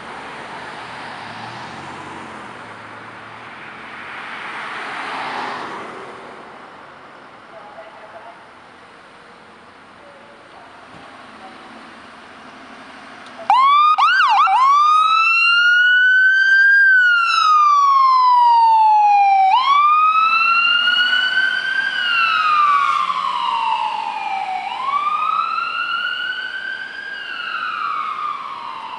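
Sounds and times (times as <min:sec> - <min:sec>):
ambulance siren wailing: 0:13.3 - 0:28.9.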